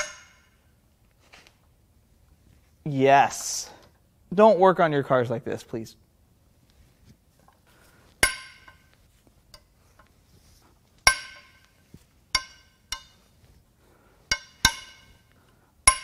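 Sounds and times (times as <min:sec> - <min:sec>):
metal-on-metal clinks: 0:14.3 - 0:15.3.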